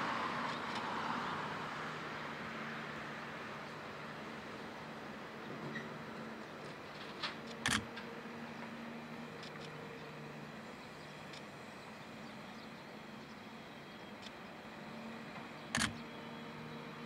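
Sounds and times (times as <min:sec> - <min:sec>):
distant vehicle hum: 0:00.0 - 0:17.0
sharp click: 0:07.5 - 0:07.9, 0:15.7 - 0:16.0.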